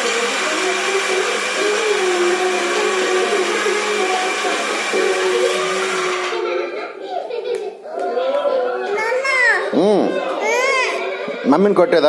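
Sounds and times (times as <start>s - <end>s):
small appliance motor whirring: 0.0s - 6.4s.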